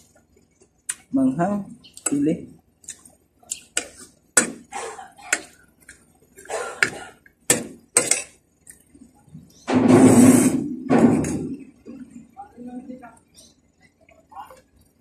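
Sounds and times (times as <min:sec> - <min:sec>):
chewing: 0:02.8 - 0:04.2.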